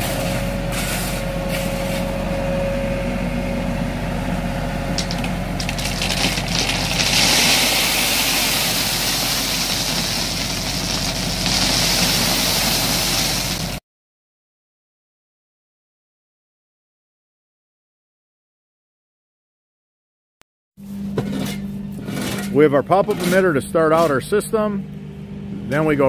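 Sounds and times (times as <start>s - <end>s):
small dumper engine running: 0.0s - 13.8s
crushed stone pouring and rattling: 4.9s - 13.8s.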